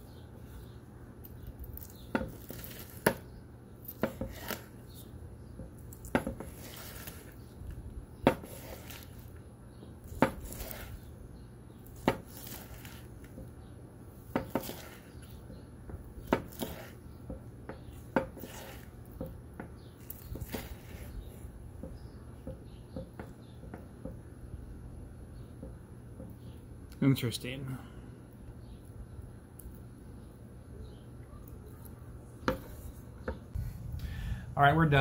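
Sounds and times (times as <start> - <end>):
knife slicing steak: 3.9 - 4.8, 6.2 - 7.4, 8.3 - 9.3, 10.0 - 11.1, 14.4 - 15.3, 16.3 - 17.0, 18.1 - 19.2, 20.0 - 21.2.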